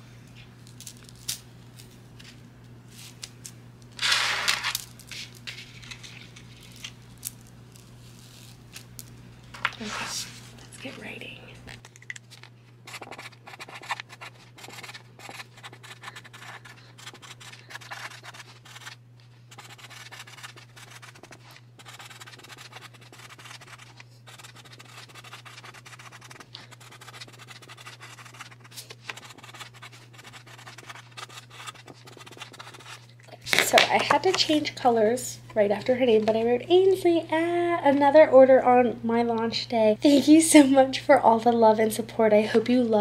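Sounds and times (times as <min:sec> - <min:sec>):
steady low hum: 0:00.0 - 0:43.0
marker scratching on card: 0:12.9 - 0:33.0.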